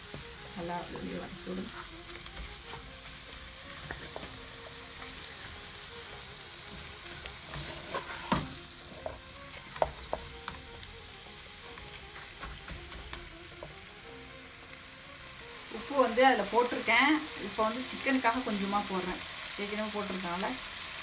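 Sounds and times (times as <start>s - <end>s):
wooden spatula stirring in pan: 0.0s - 10.9s, 11.5s - 13.8s
chicken sizzling in oil: 0.0s - 21.0s.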